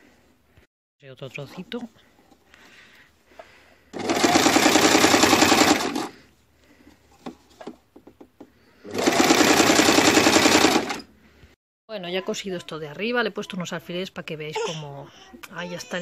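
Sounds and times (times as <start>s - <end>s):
sewing machine stitching: 3.9s - 6.2s, 8.8s - 11.1s.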